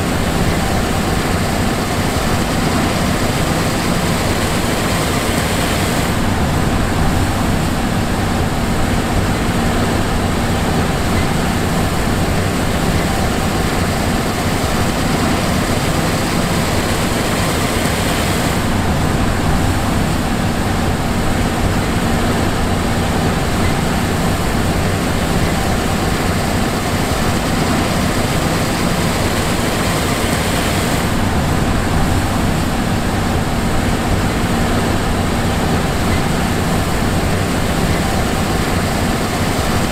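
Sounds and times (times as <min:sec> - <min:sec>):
combine harvester engine drone: 0:00.0 - 0:39.9.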